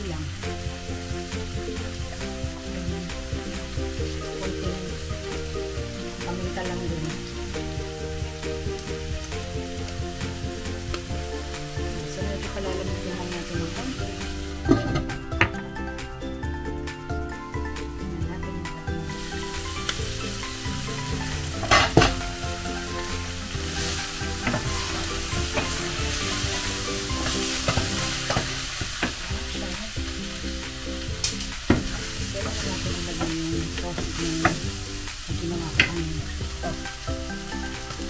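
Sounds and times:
meat sizzling in a skillet: 0.0 - 38.0
wooden spoon stirring: 17.6 - 38.0.

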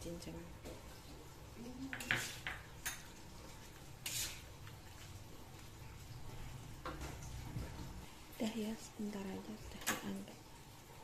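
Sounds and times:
metal skimmer scraping wok: 3.9 - 4.6.

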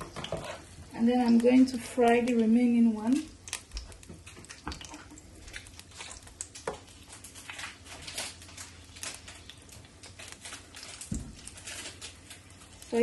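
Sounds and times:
food deep-frying in hot oil: 0.0 - 13.0.

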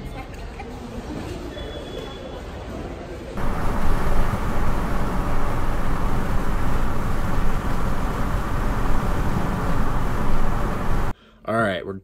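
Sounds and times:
cars driving past: 3.4 - 11.1.

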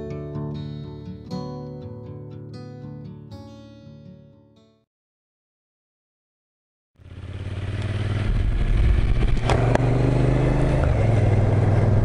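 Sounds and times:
motorcycle engine running: 7.0 - 12.0.

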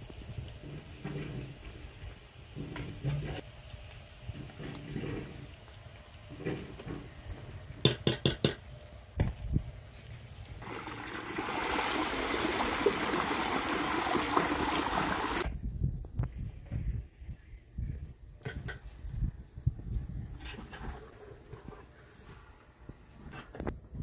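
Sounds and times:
water gushing into trough: 10.6 - 15.5.

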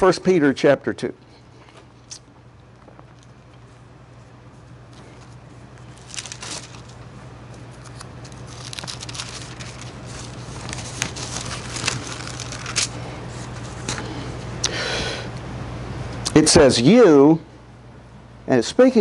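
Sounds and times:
steady low hum: 0.0 - 19.0
paper rustling: 5.0 - 14.1
pages flicking: 5.9 - 7.0, 7.6 - 13.0.

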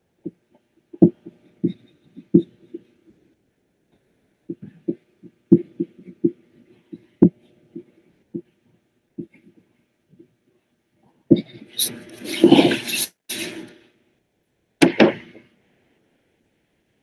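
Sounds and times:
soft knocks and thumps: 9.2 - 10.3.

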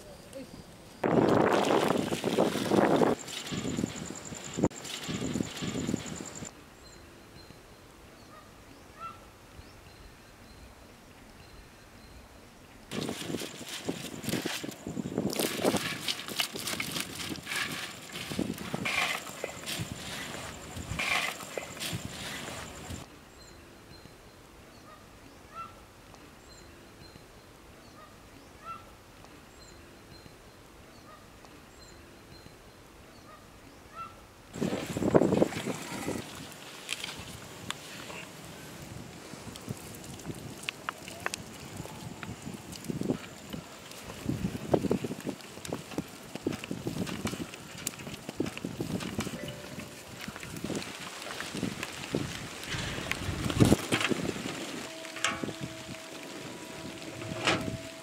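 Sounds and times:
crackling wood fire: 0.2 - 6.6, 12.8 - 23.1, 34.5 - 58.0.

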